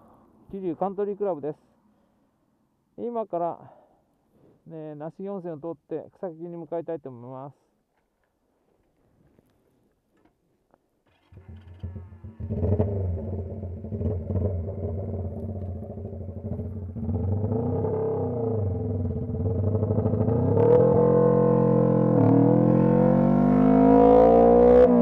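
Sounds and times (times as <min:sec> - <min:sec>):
motorcycle engine accelerating: 0:11.1 - 0:25.0.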